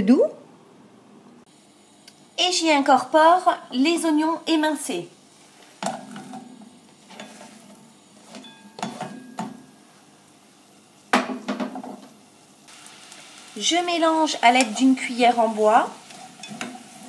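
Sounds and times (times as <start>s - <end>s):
onions scraped into saucepan: 5.4s - 8.4s, 15.9s - 17.0s.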